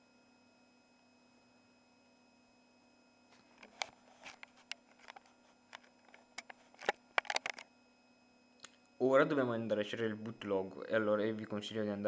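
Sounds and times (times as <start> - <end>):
faint steady hum: 0.0 - 12.0
device handling clicks and taps: 3.6 - 7.7.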